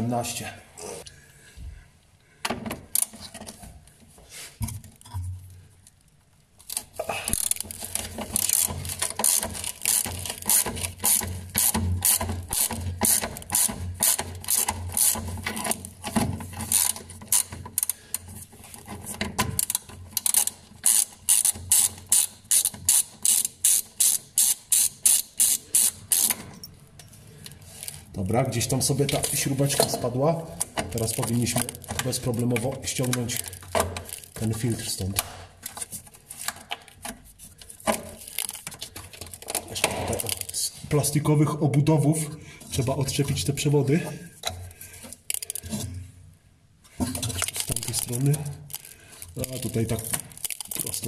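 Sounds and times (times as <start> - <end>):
socket ratchet clicking: 7.3 - 16.0, 19.6 - 26.6.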